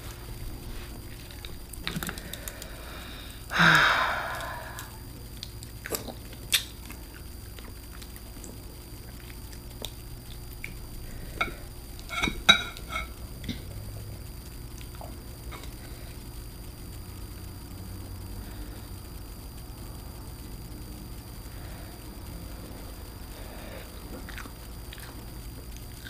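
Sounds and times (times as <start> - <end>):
wet chewing: 4.3 - 12.2, 14.4 - 15.8, 24.0 - 26.0.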